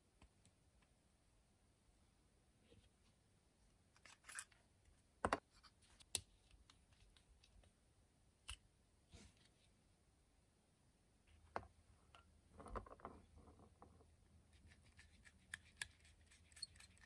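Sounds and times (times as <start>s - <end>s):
pen parts clicking and tapping: 14.9s - 17.0s.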